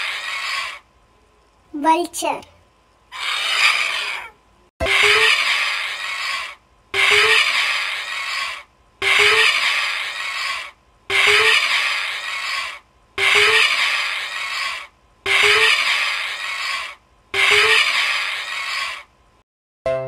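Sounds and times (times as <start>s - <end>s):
vulture hissing: 0.0s - 0.8s, 3.1s - 4.3s, 5.4s - 6.6s, 7.4s - 8.7s, 9.5s - 10.8s, 11.5s - 12.8s, 13.6s - 14.9s, 15.8s - 17.0s, 17.8s - 19.1s.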